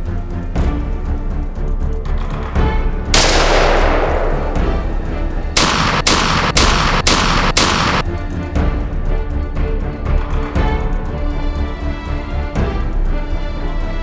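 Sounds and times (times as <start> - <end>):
background music: 0.0 - 14.0
sharp shot-like cracks: 3.2 - 8.0
shotgun blast with echo: 3.2 - 8.0.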